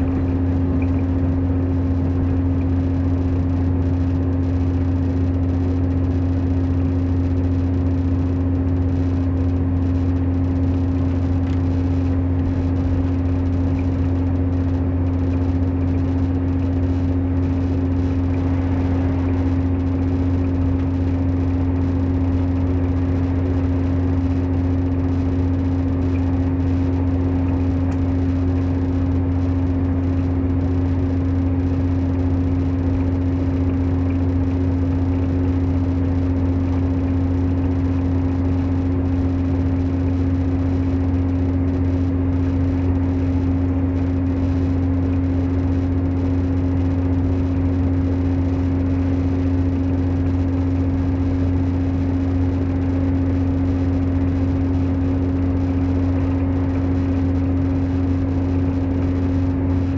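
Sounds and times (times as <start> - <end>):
diesel engine droning: 0.0 - 59.9
train rumbling: 18.2 - 21.6.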